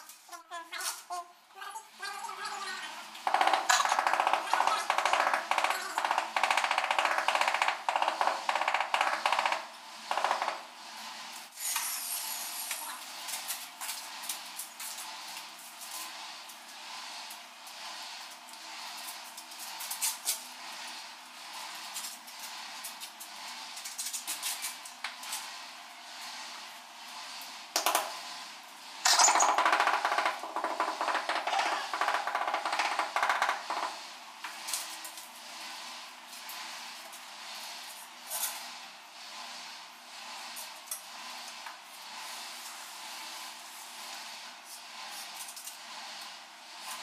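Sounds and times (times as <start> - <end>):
rapid tapping on ceramic tile: 3.3 - 10.6, 29.1 - 34.0.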